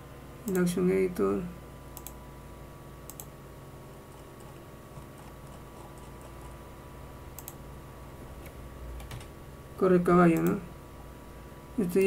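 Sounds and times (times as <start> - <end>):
low electrical hum: 0.0 - 12.0
computer mouse clicks: 2.0 - 2.2, 3.1 - 3.3, 7.3 - 7.6, 10.3 - 10.6.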